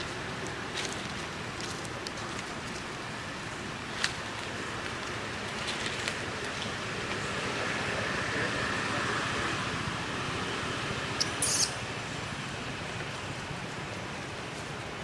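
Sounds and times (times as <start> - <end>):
dry leaves crackling underfoot: 0.0 - 7.7
outdoor background hiss: 0.0 - 15.0.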